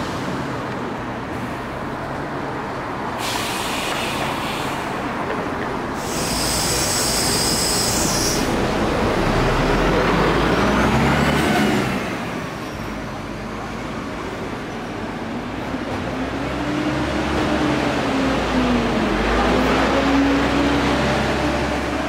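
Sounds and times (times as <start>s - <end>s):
compressed air hiss: 3.2s - 5.0s, 6.0s - 8.6s.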